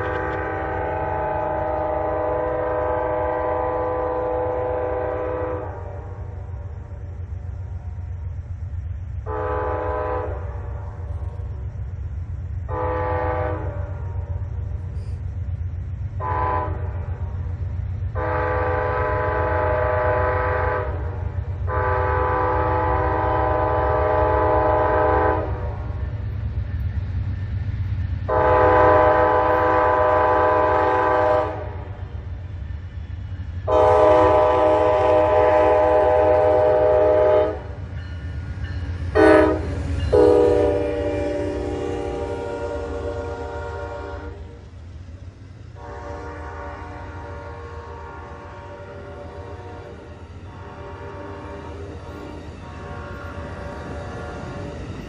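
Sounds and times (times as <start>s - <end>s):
locomotive air horn blasts: 0.0s - 6.4s, 9.2s - 11.4s, 12.7s - 14.3s, 16.2s - 17.2s, 18.1s - 26.0s, 28.3s - 32.0s, 33.6s - 37.8s, 39.1s - 44.6s, 45.8s - 51.8s, 52.6s - 54.4s
train rumble: 0.0s - 55.0s.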